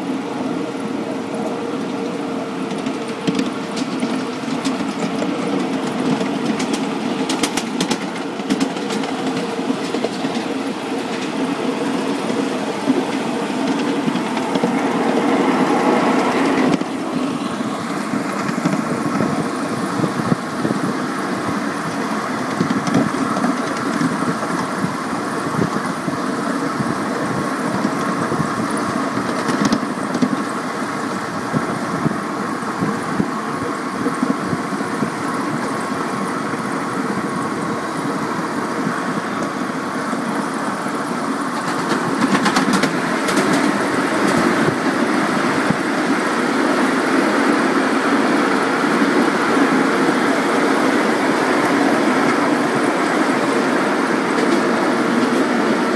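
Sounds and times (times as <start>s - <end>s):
train wheels clicking on bridge: 1.3s - 55.9s.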